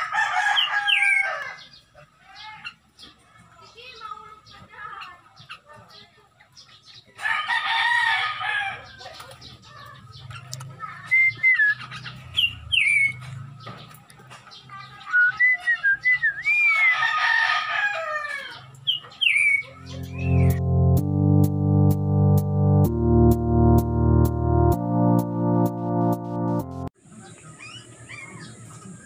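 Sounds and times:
rooster crowing: 0.0s - 1.7s, 7.2s - 8.9s, 16.8s - 18.6s
whistled bird chirps: 15.1s - 17.0s.

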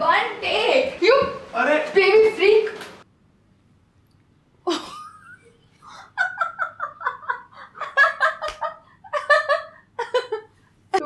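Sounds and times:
man and woman laughing: 4.7s - 10.5s.

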